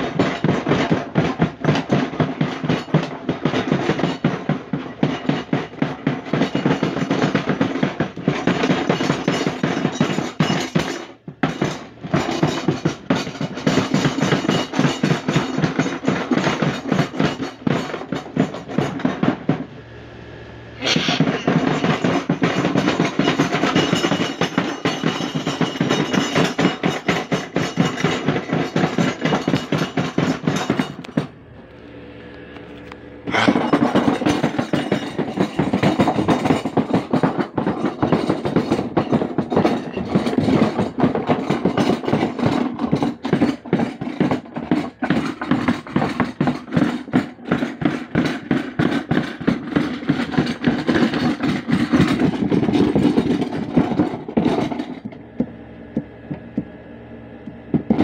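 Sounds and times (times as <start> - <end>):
washing machine load knocking: 0.0 - 19.7, 21.2 - 31.4, 33.3 - 56.7, 57.5 - 58.0
faint hum: 19.5 - 21.5, 31.0 - 33.8.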